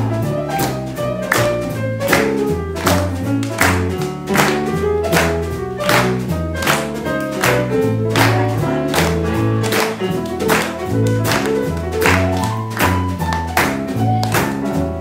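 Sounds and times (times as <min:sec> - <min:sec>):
drums: 0:00.0 - 0:15.0
piano: 0:00.0 - 0:15.0
upright bass walking: 0:00.0 - 0:15.0
hand claps: 0:00.6 - 0:14.8.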